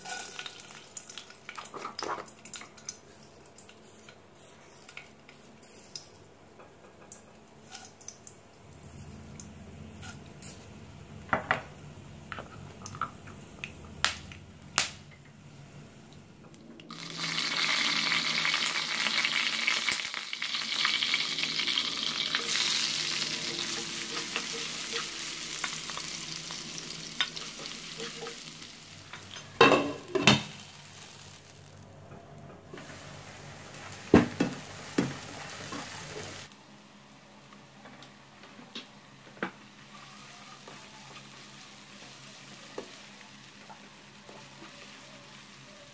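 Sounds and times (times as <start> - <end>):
onions sizzling in hot oil: 0.0 - 6.2, 7.6 - 8.2, 16.9 - 31.8, 32.8 - 36.6, 39.7 - 45.9.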